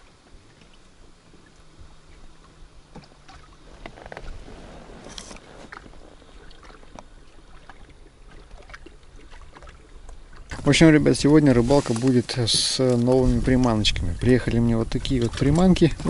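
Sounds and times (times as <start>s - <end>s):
rush of water: 0.0s - 16.0s
small waves lapping against boat hull: 0.0s - 16.0s
clicks and rustles of fishing tackle: 5.0s - 6.0s.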